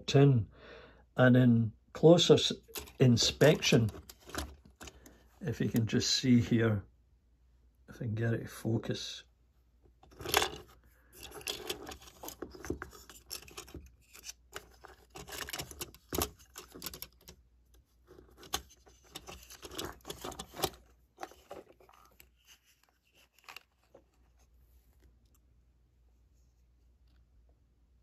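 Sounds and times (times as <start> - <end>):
plastic model train handling: 2.6 - 5.9, 10.0 - 24.4.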